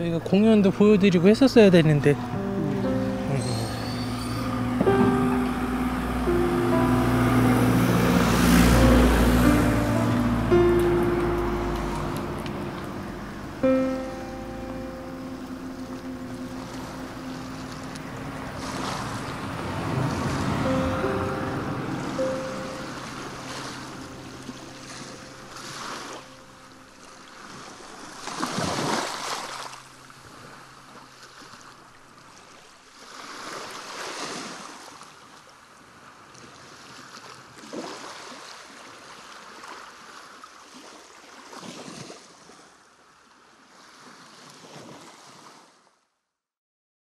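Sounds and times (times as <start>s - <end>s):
music: 0.6s - 27.6s
sea waves washing onto shore: 1.0s - 42.4s.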